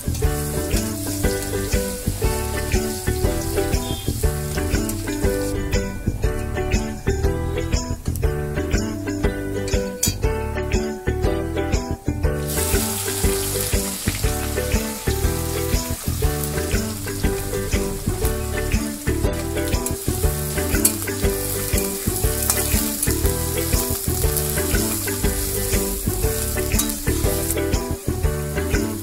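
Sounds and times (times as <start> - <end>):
onions sizzling in hot oil: 0.0 - 5.8, 12.4 - 29.0
background music: 0.0 - 29.0.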